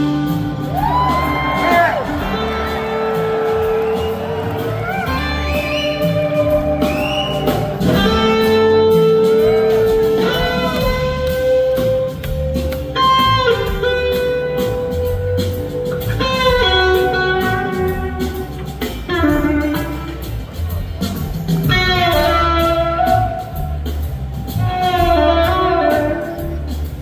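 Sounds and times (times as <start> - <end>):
bass: 0.0 - 27.0
drums: 0.0 - 27.0
slide guitar solo: 7.4 - 12.1.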